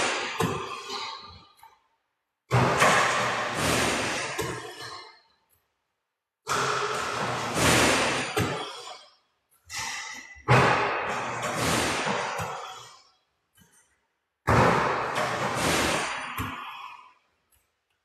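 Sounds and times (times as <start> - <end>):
basketball hitting rim and net: 0.0 - 1.4, 2.5 - 5.0, 6.5 - 9.0, 9.7 - 12.9, 14.5 - 17.0
ball-return machine: 2.5 - 5.6, 9.7 - 12.9, 14.5 - 17.0.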